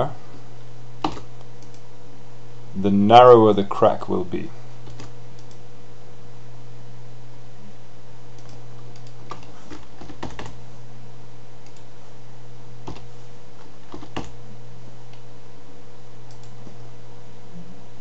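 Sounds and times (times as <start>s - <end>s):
steady low hum: 0.0s - 18.0s
computer keys and mouse clicking: 1.0s - 1.9s, 4.8s - 5.6s, 8.3s - 10.6s, 11.6s - 11.9s, 12.8s - 14.4s, 16.3s - 16.8s.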